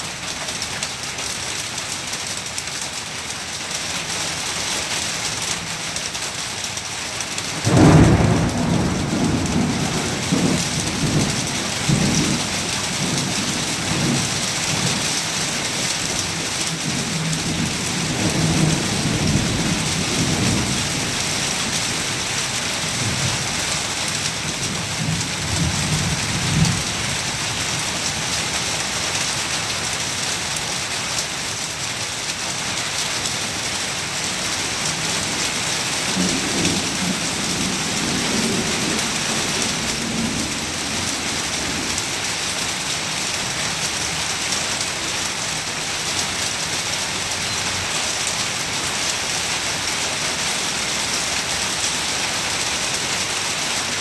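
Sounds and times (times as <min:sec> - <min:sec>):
heavy rain: 0:00.0 - 0:54.0
rolling thunder: 0:07.6 - 0:22.2.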